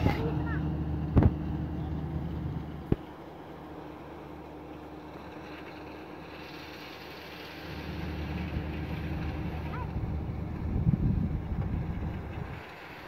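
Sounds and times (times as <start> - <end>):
steady low hum: 0.0 - 13.0
wind rumbling on microphone: 8.1 - 13.0.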